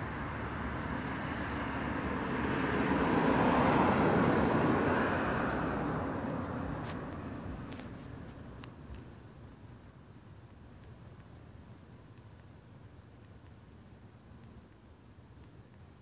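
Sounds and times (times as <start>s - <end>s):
car passing by: 0.0s - 7.8s.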